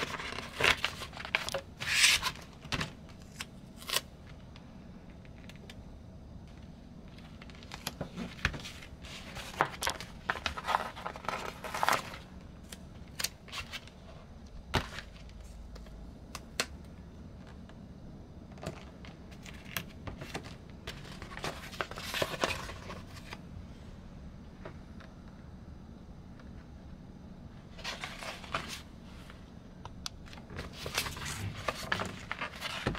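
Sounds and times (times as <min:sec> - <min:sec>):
paper rustling and crinkling: 0:00.0 - 0:04.4, 0:06.5 - 0:15.9, 0:18.6 - 0:23.4, 0:27.7 - 0:29.4, 0:30.2 - 0:32.9.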